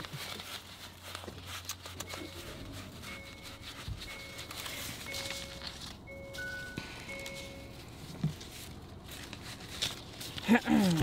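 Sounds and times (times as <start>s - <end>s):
paper banknotes rustling: 0.0s - 11.0s.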